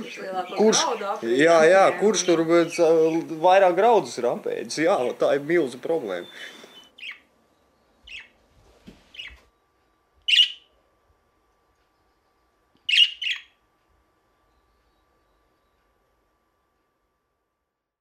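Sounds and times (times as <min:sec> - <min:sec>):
budgerigars calling: 0:00.2 - 0:03.2, 0:06.0 - 0:07.3, 0:08.0 - 0:08.4, 0:09.1 - 0:09.4, 0:10.3 - 0:10.7, 0:12.9 - 0:13.6.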